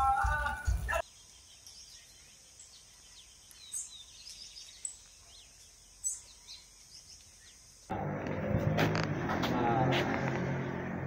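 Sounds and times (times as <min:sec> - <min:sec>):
birds chirping: 0:00.0 - 0:11.0
insect drone: 0:00.6 - 0:09.2.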